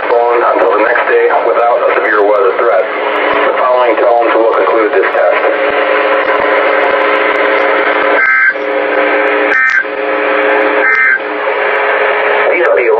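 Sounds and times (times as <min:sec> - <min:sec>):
radio receiver hum and hiss: 0:00.0 - 0:12.9
two-tone data burst warbles: 0:07.5 - 0:12.2.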